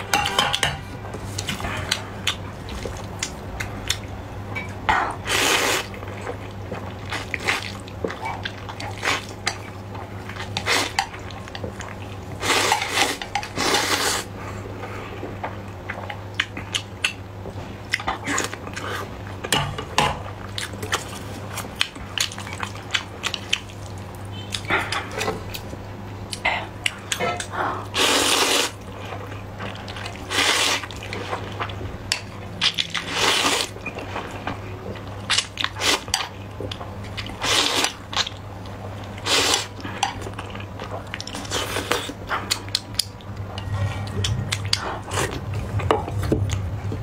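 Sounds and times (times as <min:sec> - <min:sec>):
low steady hum: 0:00.0 - 0:47.0
wet chewing: 0:20.4 - 0:46.7
noodle slurping: 0:28.0 - 0:28.8, 0:30.2 - 0:31.2, 0:39.2 - 0:39.7.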